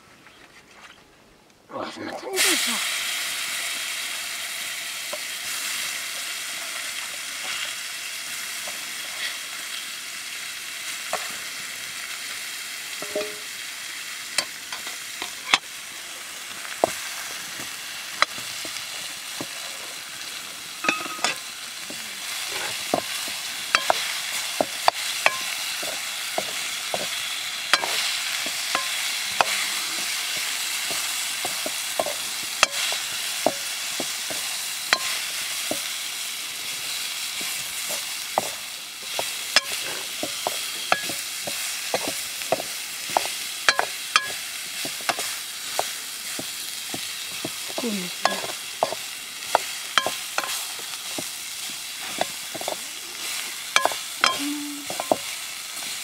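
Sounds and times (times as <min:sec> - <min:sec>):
potatoes sizzling in pan: 0:02.2 - 0:56.0
metal ladle scraping pan: 0:13.0 - 0:13.5, 0:20.8 - 0:21.5, 0:22.4 - 0:33.7, 0:37.4 - 0:45.9, 0:48.3 - 0:49.0, 0:49.6 - 0:50.6, 0:53.8 - 0:55.2.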